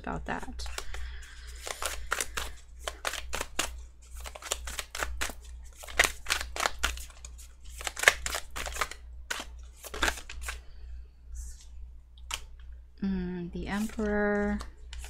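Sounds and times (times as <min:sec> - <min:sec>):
cards being shuffled: 0:00.6 - 0:10.6, 0:13.7 - 0:15.0.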